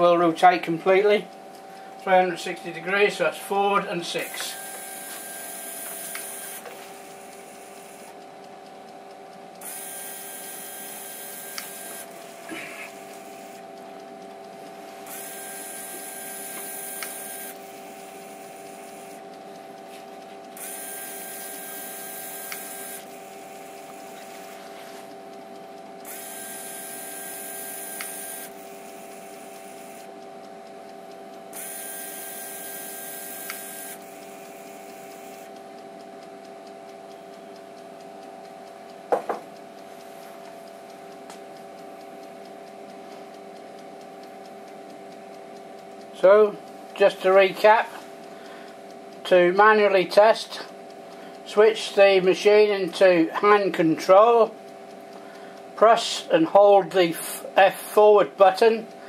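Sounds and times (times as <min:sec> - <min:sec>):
electrical hum: 0:00.0 - 0:59.0
motor whirr with high whine: 0:01.3 - 0:08.5, 0:09.6 - 0:19.7, 0:20.4 - 0:39.4.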